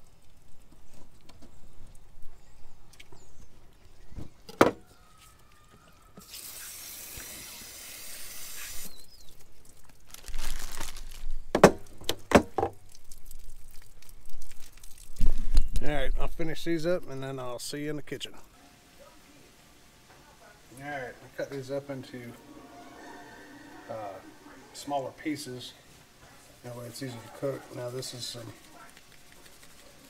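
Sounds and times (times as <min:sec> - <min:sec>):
water spraying from a sprayer: 0:06.2 - 0:09.1.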